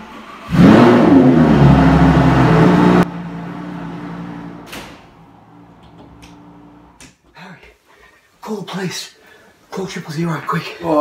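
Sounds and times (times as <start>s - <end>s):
car engine revving: 0.3s - 7.0s.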